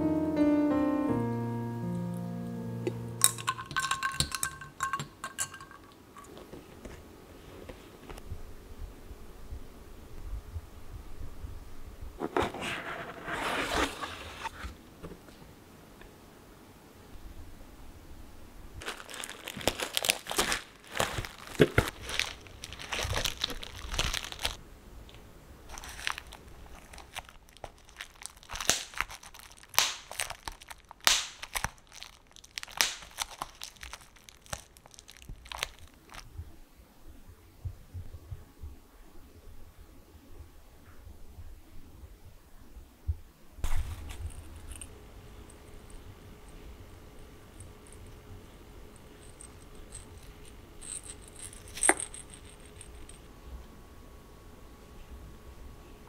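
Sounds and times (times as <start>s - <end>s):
bubble wrap crinkling: 18.8s - 36.4s, 43.6s - 46.1s.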